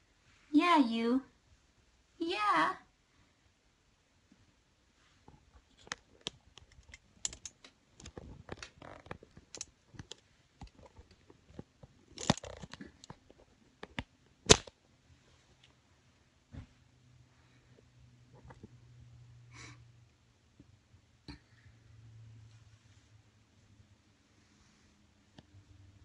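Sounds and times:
phone handling crackles and rustles: 5.6 - 14.7.

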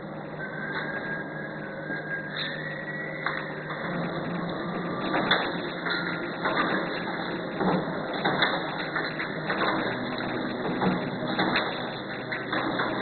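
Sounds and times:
packaging machine clatter: 4.9 - 13.0.

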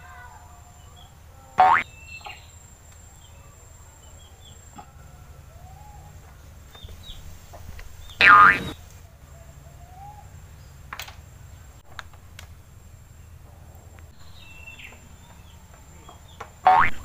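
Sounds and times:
faint bird chirps: 0.0 - 10.8, 14.1 - 17.0
cartoon boing sound effect: 1.6 - 1.8, 8.2 - 8.8, 16.7 - 17.0.

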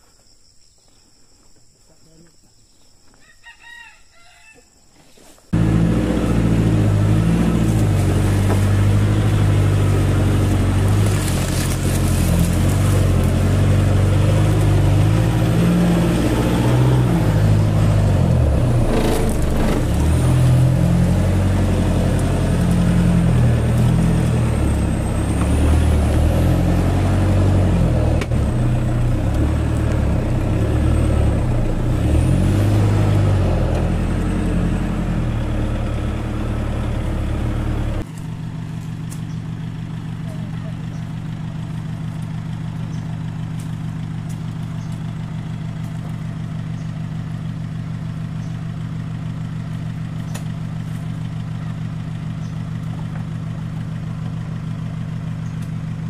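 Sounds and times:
rooster crowing: 3.2 - 4.8
pickup truck engine running: 5.6 - 56.0.

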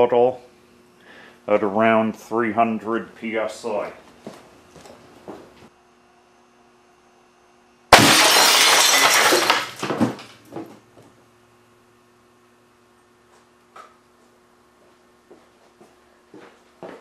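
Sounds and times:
glass shattering crash: 7.9 - 10.3
picture tube imploding: 7.9 - 10.3.

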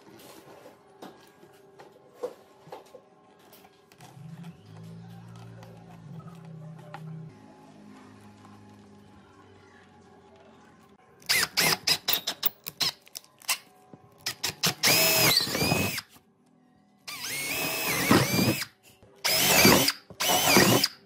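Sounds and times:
electric drill boring into wood: 14.5 - 16.0, 17.1 - 18.7, 19.3 - 21.0.

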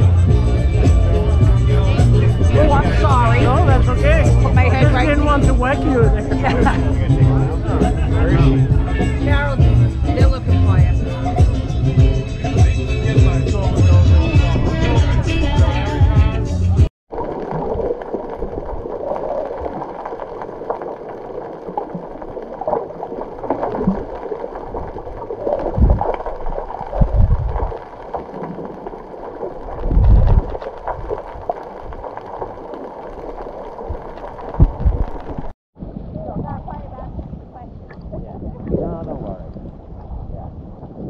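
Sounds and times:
low thumps: 0.0 - 16.9, 25.6 - 27.8
water splashing against boat hull: 17.1 - 41.0.

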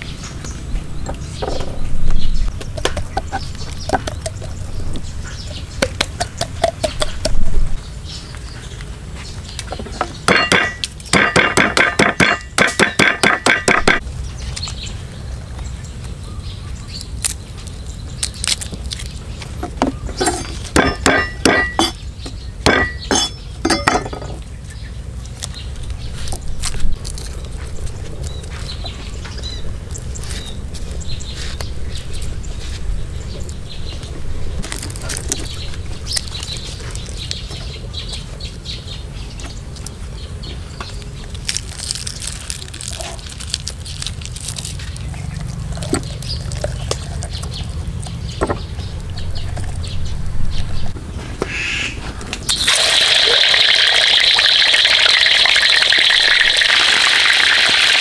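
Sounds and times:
cleaver chopping on wooden block: 10.3 - 14.0, 19.7 - 22.0.

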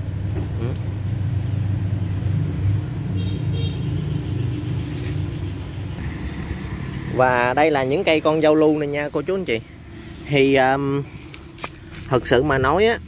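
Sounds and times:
low mechanical rumble: 0.0 - 13.0.

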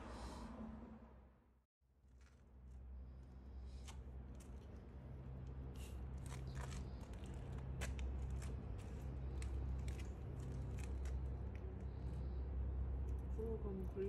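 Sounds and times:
steady low hum: 2.6 - 14.0
gravel clicking and crunching: 3.7 - 12.1.

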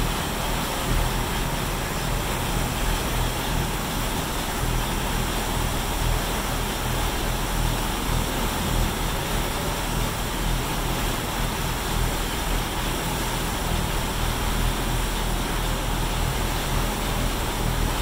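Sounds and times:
boat engines droning: 0.0 - 18.0
wake water rushing: 0.0 - 18.0.

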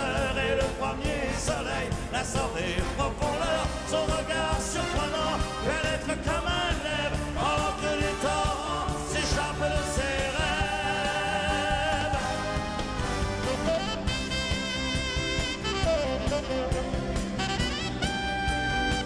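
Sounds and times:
man singing with vibrato: 0.0 - 13.9
live band music: 0.0 - 19.0
saxophone solo: 12.0 - 19.0.

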